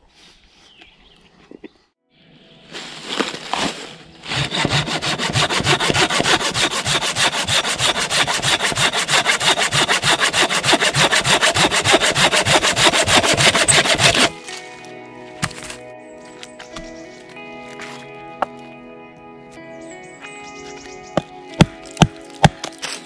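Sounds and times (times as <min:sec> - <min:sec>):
hand saw cutting wood: 0:04.2 - 0:14.4.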